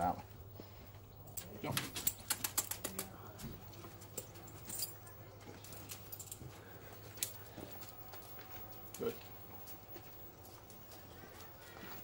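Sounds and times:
dog claws clicking on tarmac: 1.4s - 3.2s
chain collar jingling: 4.2s - 6.5s.

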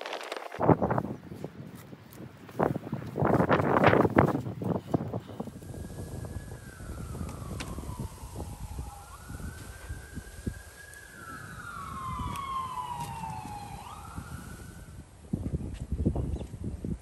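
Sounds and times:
low rumbling noise: 3.3s - 15.6s
siren wailing: 5.4s - 15.0s.

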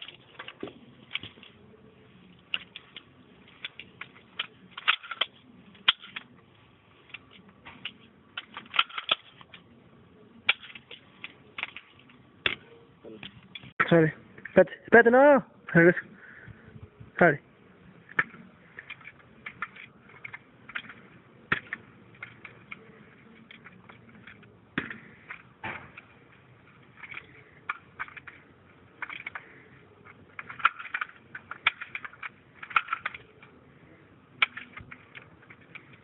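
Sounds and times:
rifle clicks and rattles: 0.0s - 1.6s, 2.3s - 6.3s, 7.0s - 9.7s, 10.4s - 12.6s, 18.1s - 33.6s, 34.4s - 36.0s.

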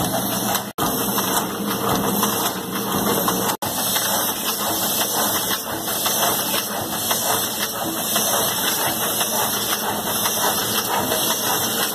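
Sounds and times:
printing machine running: 0.0s - 11.9s.

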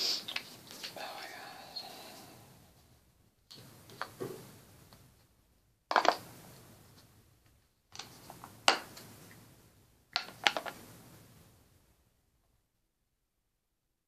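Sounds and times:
faint hiss: 0.0s - 5.4s.

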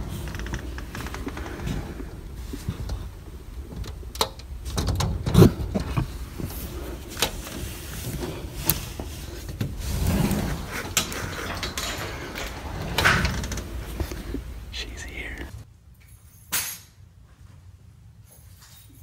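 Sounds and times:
clicks and knocks: 2.6s - 14.5s.

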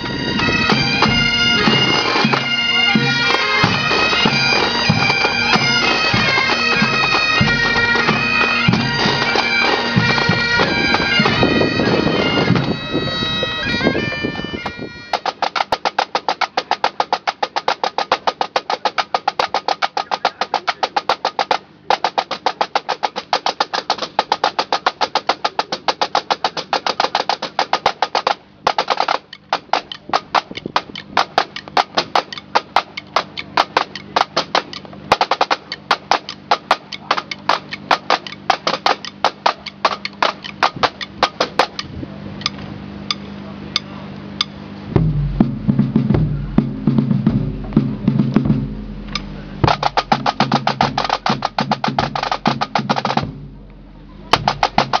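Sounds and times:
snare drums playing rolls: 0.0s - 12.9s, 15.1s - 41.9s, 43.1s - 55.0s
loud low rumbling: 44.6s - 55.0s
bass drum beating: 45.0s - 55.0s.

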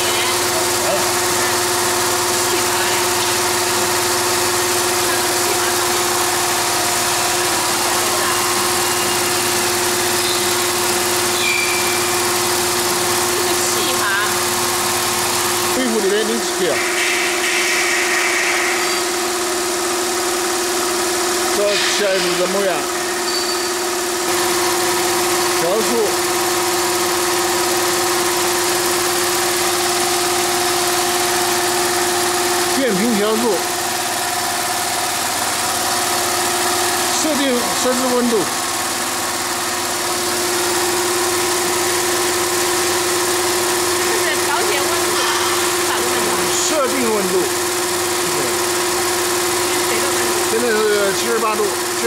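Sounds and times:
held motor tone: 0.0s - 52.0s
higher motor tone: 0.0s - 52.0s
machinery humming: 0.0s - 52.0s.

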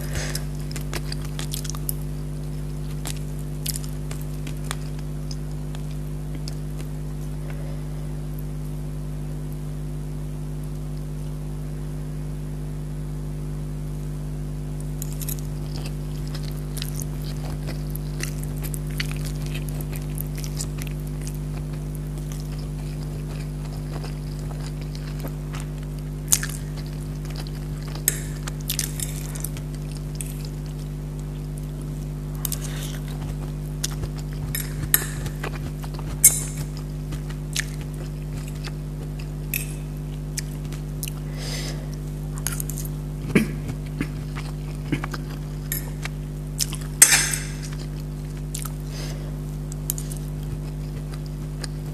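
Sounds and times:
steady low hum: 0.0s - 51.9s
chewing and wet mouth clicks: 32.4s - 41.2s, 42.4s - 48.8s, 49.7s - 51.9s
fork clinking against plate: 47.0s - 47.8s.

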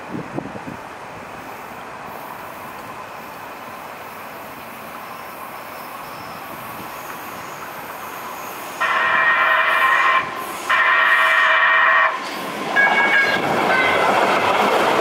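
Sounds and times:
light rail train running: 0.0s - 15.0s
faint wheel squeal: 5.0s - 8.8s.

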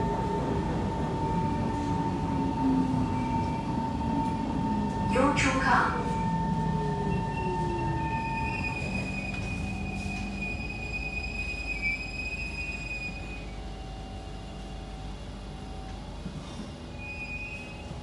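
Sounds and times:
train running noise: 0.0s - 18.0s
wheels and brakes squealing: 7.0s - 13.6s, 16.9s - 18.0s.

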